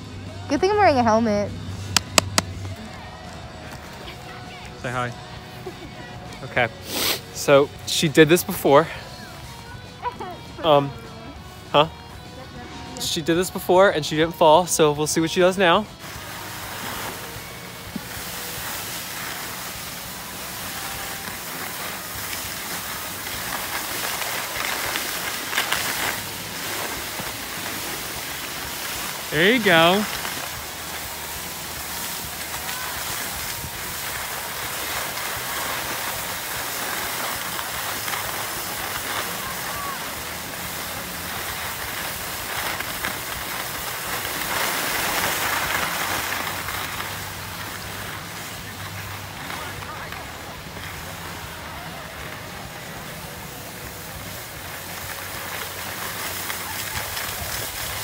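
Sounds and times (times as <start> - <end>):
skis sliding over packed snow: 2.1 - 58.0
ski scrapes: 6.5 - 9.2, 16.0 - 58.0.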